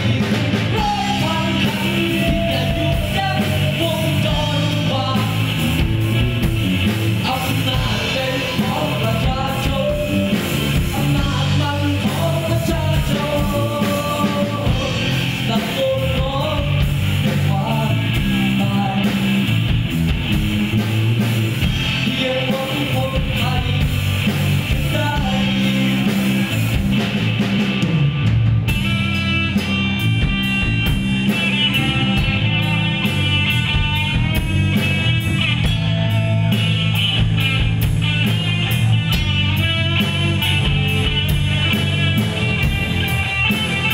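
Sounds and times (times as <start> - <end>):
man singing: 0.0 - 5.9, 7.2 - 19.6, 21.8 - 26.6
bass guitar: 0.0 - 43.9
drums: 0.0 - 43.9
electric guitar: 0.0 - 43.9.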